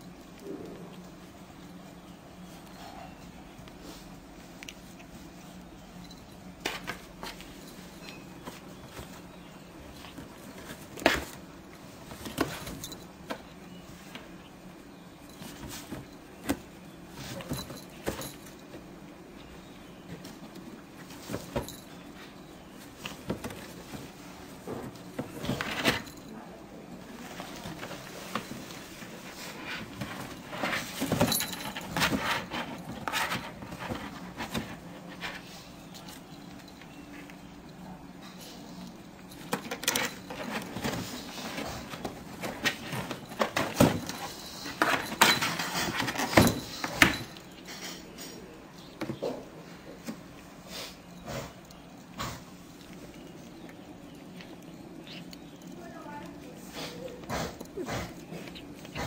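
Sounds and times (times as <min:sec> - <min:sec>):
cardboard boxes rustling and scraping: 0:06.1 - 0:13.4, 0:15.3 - 0:18.6, 0:27.1 - 0:36.3, 0:39.3 - 0:47.3
cardboard rustling: 0:27.1 - 0:36.7.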